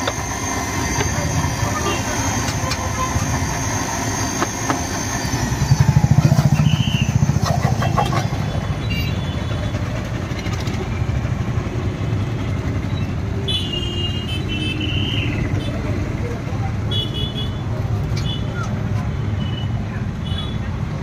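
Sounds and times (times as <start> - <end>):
small engine running loudly: 0.0 - 13.4
street traffic: 0.0 - 21.0.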